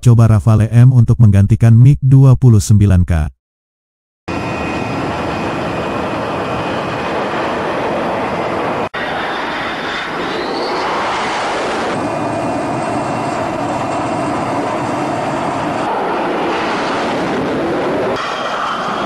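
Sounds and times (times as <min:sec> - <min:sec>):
jet fighter engines running: 0:04.3 - 0:19.0
rising whine: 0:04.3 - 0:19.0.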